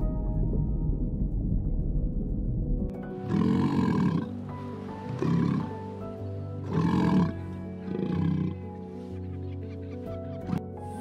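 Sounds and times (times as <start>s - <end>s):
background music: 0.0s - 11.0s
sea lion barking: 6.6s - 8.7s.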